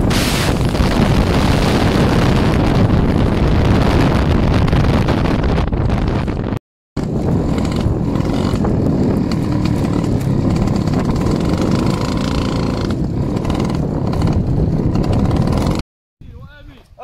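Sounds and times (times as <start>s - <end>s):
wind rumble on microphone: 0.0s - 16.5s
moped engine running: 7.0s - 15.8s.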